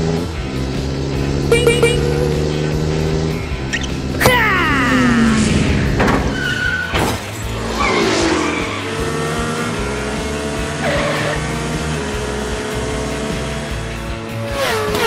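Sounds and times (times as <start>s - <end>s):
background music: 0.0s - 15.0s
cartoon cars zooming by: 3.7s - 11.7s
tyre squeals: 6.2s - 7.0s.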